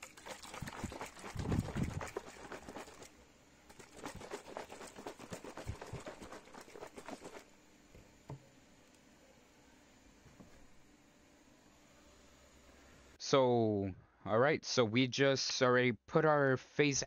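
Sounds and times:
powder rattling in shaker cup: 0:00.0 - 0:03.1, 0:03.7 - 0:07.5.

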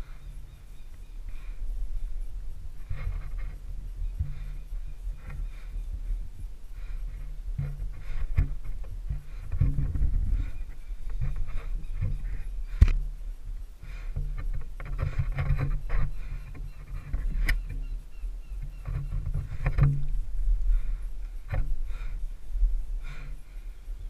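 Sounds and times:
low rumble of handling noise: 0:00.0 - 0:24.0
rope scraping against tree trunk: 0:02.8 - 0:06.2, 0:14.0 - 0:17.9
knocks and clicks of gear: 0:14.2 - 0:17.9, 0:18.6 - 0:20.2.

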